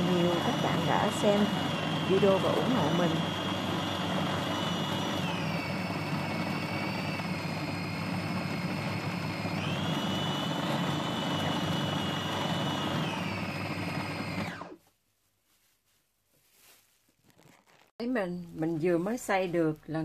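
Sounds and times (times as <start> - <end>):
food processor motor whine: 0.0 - 14.8.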